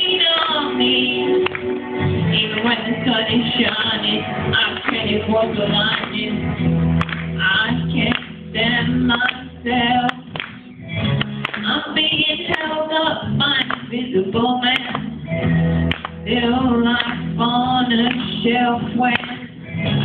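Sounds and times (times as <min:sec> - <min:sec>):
boy singing pop-rock ballad: 0:00.0 - 0:10.5, 0:11.6 - 0:20.0
backing track music: 0:00.0 - 0:20.0.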